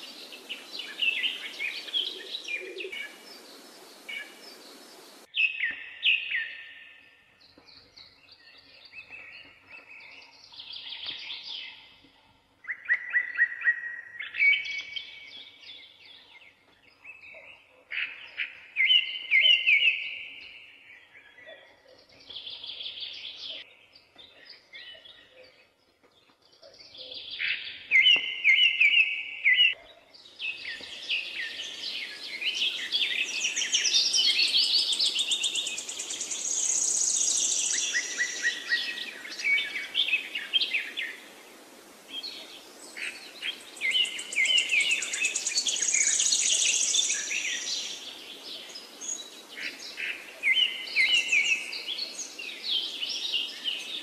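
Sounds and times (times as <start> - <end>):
steady hiss: 0.0 - 5.3, 30.8 - 54.0
birds chirping: 0.0 - 41.4, 42.0 - 54.0.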